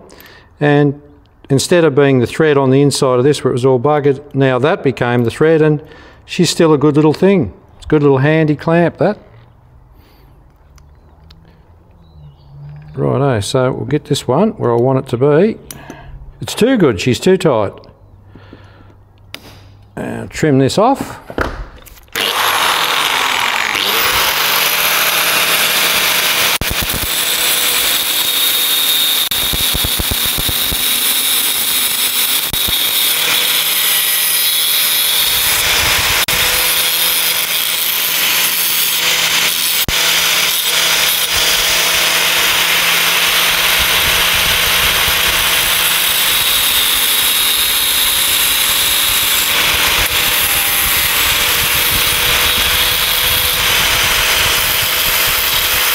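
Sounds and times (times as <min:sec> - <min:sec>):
angle grinder grinding steel: 0:21.9 - 0:55.9.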